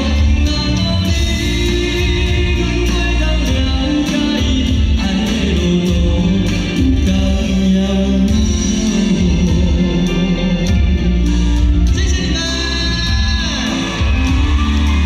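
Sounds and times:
live pop song over loudspeakers: 0:00.0 - 0:15.0.

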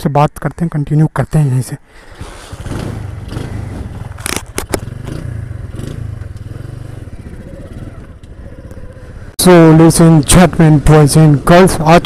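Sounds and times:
small motorcycle engine running: 0:02.1 - 0:09.3
motorcycle knocks and rattles: 0:02.6 - 0:09.0.

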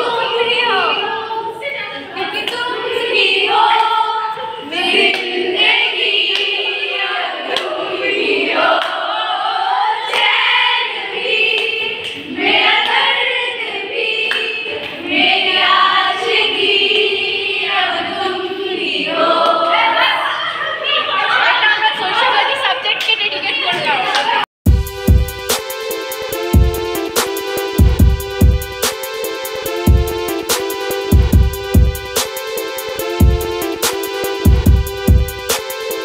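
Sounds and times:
women singing together: 0:00.0 - 0:24.5.

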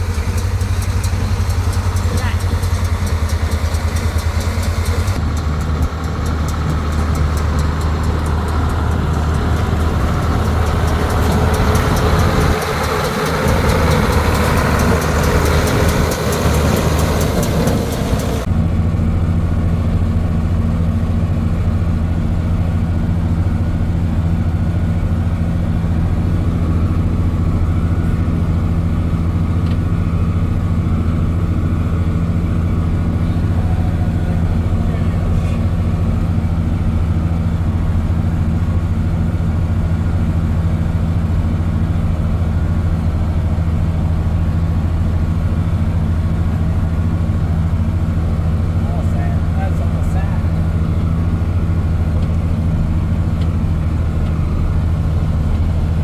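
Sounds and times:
baler mechanical rattle: 0:00.0 - 0:18.6
tractor diesel engine running: 0:00.0 - 0:56.0.

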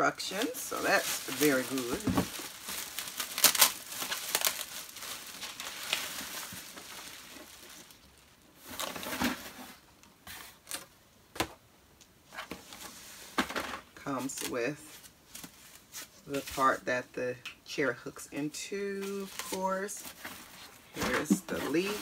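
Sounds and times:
plastic bag crinkling: 0:00.2 - 0:09.5, 0:19.0 - 0:22.0
cardboard packing rustling: 0:00.2 - 0:10.9, 0:19.0 - 0:22.0.

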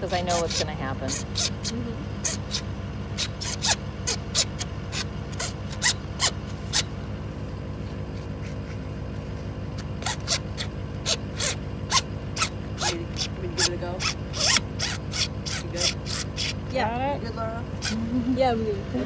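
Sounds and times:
engine droning: 0:00.0 - 0:19.0
sharp ticks or scrapes: 0:00.3 - 0:06.9, 0:09.8 - 0:16.6.

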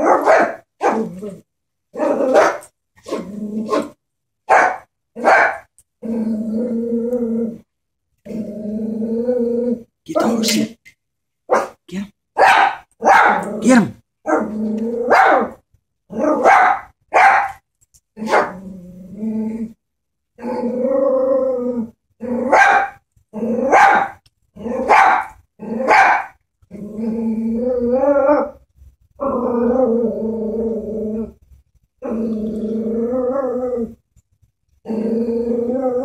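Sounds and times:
dog yapping: 0:00.0 - 0:01.1, 0:02.0 - 0:03.9, 0:04.5 - 0:05.6, 0:12.4 - 0:13.5, 0:15.1 - 0:15.6, 0:16.3 - 0:17.6, 0:22.5 - 0:23.0, 0:23.7 - 0:24.2, 0:24.8 - 0:26.4
dog growling: 0:00.9 - 0:02.4, 0:06.0 - 0:10.6, 0:18.2 - 0:19.8, 0:20.4 - 0:22.6, 0:26.7 - 0:28.6, 0:29.2 - 0:31.4, 0:32.0 - 0:34.0, 0:34.8 - 0:36.0.

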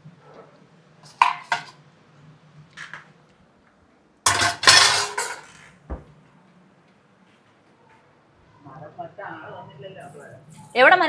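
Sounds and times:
metal pots clattering: 0:01.0 - 0:01.8, 0:04.3 - 0:05.7.

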